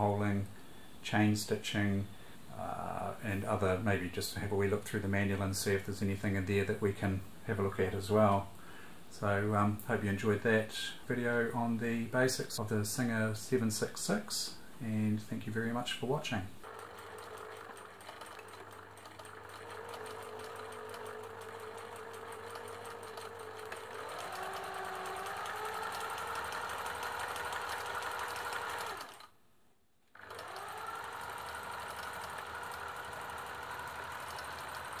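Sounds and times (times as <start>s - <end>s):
sewing machine stitching: 16.6s - 29.4s, 30.1s - 35.0s.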